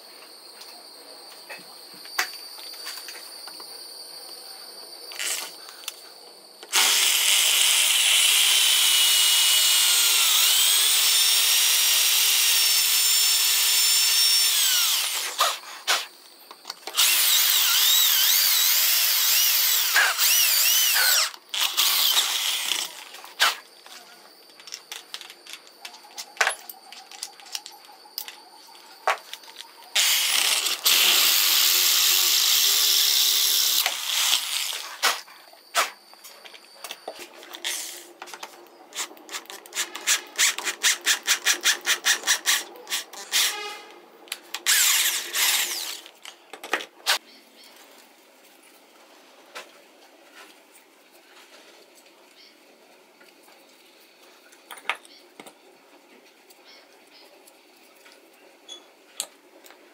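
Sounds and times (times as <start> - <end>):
power drill whining into metal: 6.6 - 16.1, 16.7 - 25.7, 29.2 - 35.3, 38.9 - 43.9, 44.5 - 46.2.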